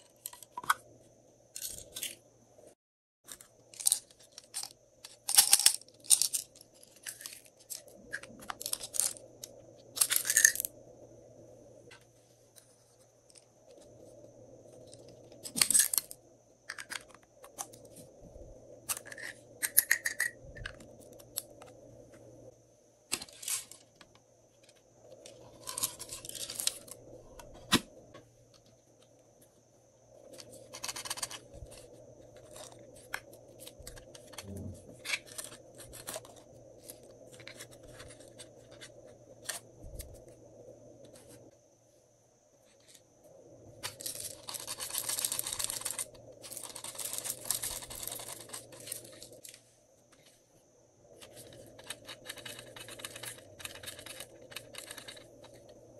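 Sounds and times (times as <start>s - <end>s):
plastic toys rubbing and rattling: 3.3s - 10.7s, 24.6s - 27.8s, 30.3s - 40.2s, 43.8s - 50.4s, 51.2s - 55.7s.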